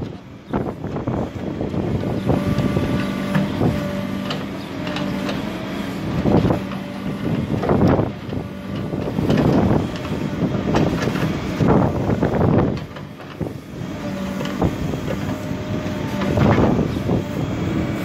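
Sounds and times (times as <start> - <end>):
backhoe bucket working dirt: 0.0 - 18.0
diesel engine under load: 0.0 - 18.0.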